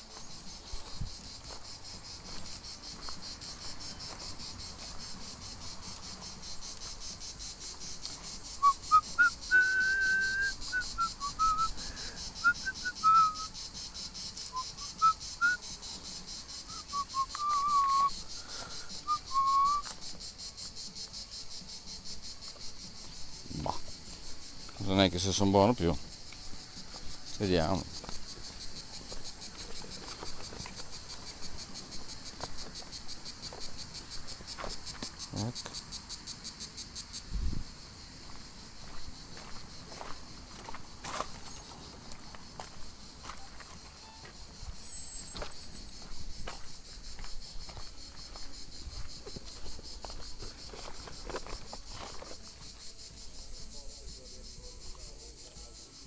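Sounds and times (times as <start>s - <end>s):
footsteps crunching on gravel: 0.0s - 8.7s, 15.6s - 35.8s, 37.5s - 53.4s
insects chirring: 0.0s - 56.0s.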